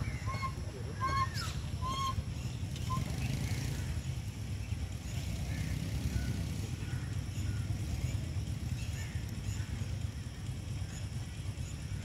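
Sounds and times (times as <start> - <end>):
whistled bird calls: 0.0 - 3.9
low outdoor rumble: 0.0 - 12.0.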